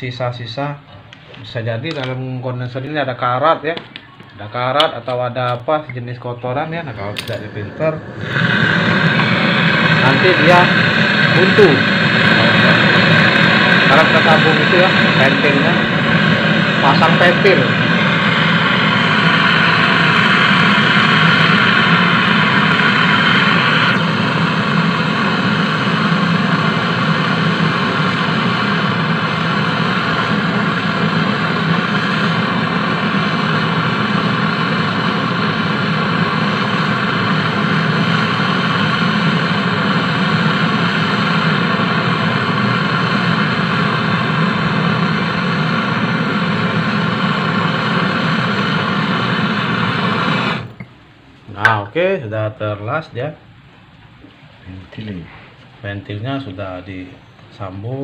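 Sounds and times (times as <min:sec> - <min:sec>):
torch flame hissing roar: 0:05.0 - 0:51.0.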